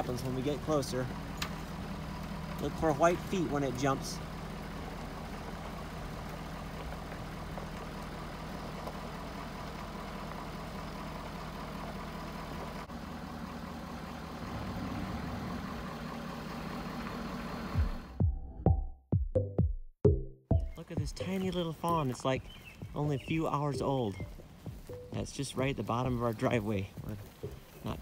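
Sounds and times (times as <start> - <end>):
vehicle engine idling: 0.0 - 18.3, 20.6 - 28.0
electronic drum beats: 17.8 - 21.6, 22.8 - 25.4.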